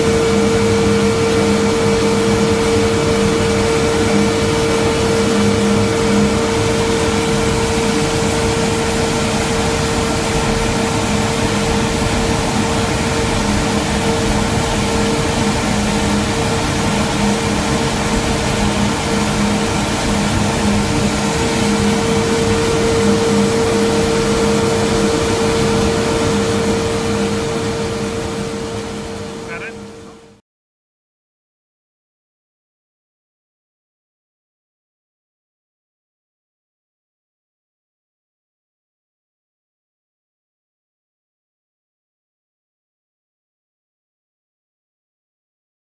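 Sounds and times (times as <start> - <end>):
turboprop engine whine: 0.0 - 30.4.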